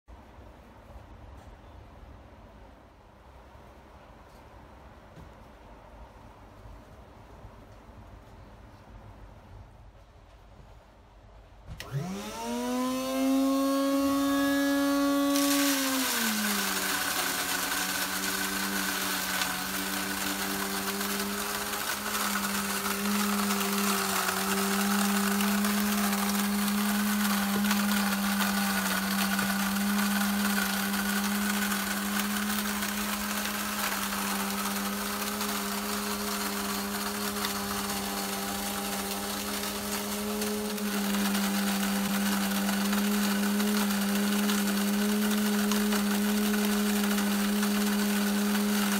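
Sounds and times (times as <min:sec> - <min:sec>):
electric grain mill motor whining: 0:11.7 - 0:48.9
corn grinding: 0:11.8 - 0:48.9.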